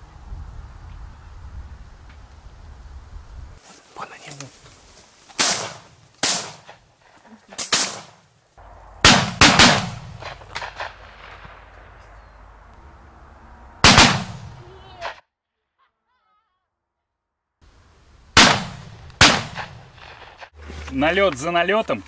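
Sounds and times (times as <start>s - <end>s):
shotgun shots: 5.4s - 6.8s, 7.6s - 8.2s, 9.0s - 12.0s, 13.8s - 15.2s, 18.4s - 20.5s.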